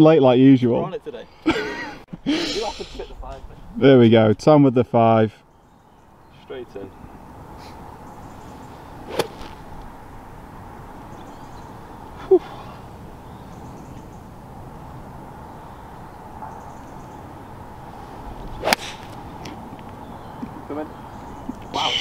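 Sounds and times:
outdoor background noise: 0.0 - 22.0
golf club striking ball: 9.1 - 9.9, 18.6 - 19.6.

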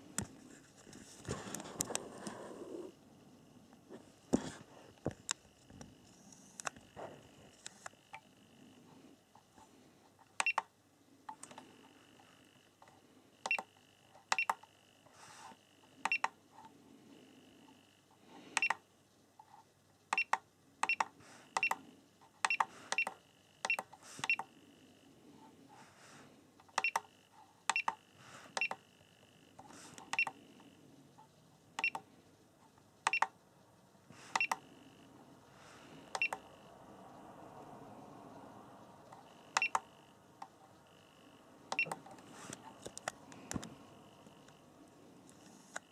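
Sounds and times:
battery charger key beep: 10.4 - 10.7, 13.4 - 13.7, 14.3 - 14.6, 16.1 - 16.3, 18.6 - 18.8, 20.1 - 21.8, 22.5 - 24.5, 26.7 - 27.1, 27.7 - 28.0, 28.6 - 28.8, 30.1 - 30.4, 31.8 - 32.0, 33.1 - 33.3, 34.3 - 34.6, 36.1 - 36.4, 39.4 - 39.9, 41.7 - 42.0.

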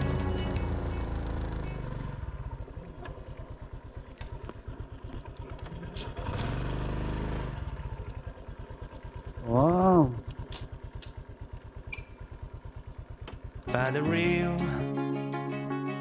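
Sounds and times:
motorcycle engine putter: 2.5 - 6.4, 10.2 - 13.6
throttle rev: 6.1 - 7.9.

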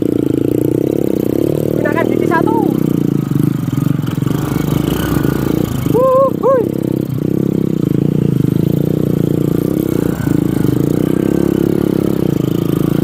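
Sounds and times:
motorcycle engine running: 0.0 - 13.0
person calling out: 1.8 - 2.9, 5.9 - 6.8.

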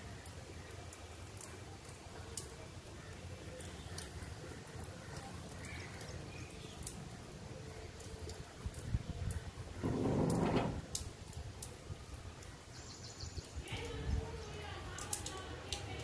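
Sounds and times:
low rain rumble: 0.0 - 16.0
raindrops ticking: 0.0 - 16.0.

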